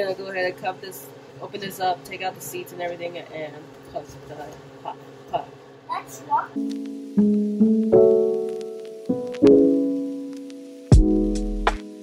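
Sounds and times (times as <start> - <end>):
piano music: 6.5 - 12.0.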